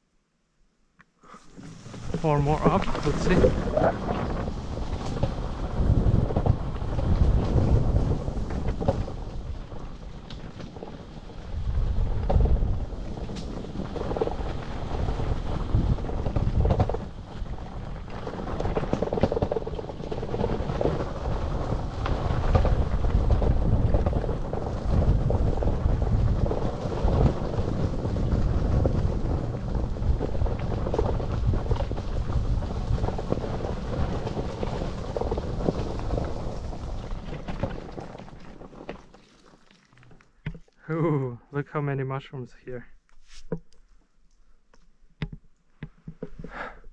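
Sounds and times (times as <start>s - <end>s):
tyres rolling over rough ground: 1.4s - 41.0s
wind buffeting microphone: 2.0s - 10.2s, 11.2s - 38.0s.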